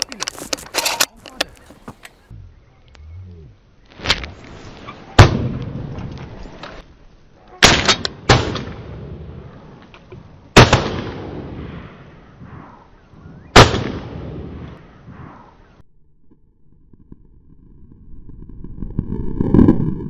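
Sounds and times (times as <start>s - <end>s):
shotgun shots echoing: 7.6s - 9.2s, 10.6s - 12.8s, 13.5s - 14.8s.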